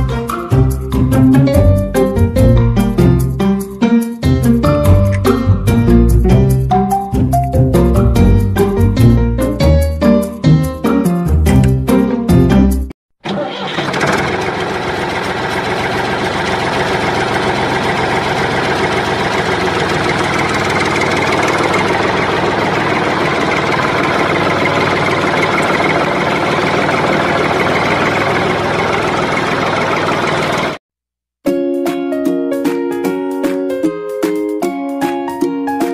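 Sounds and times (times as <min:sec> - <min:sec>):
tractor engine running: 0:13.2 - 0:30.8.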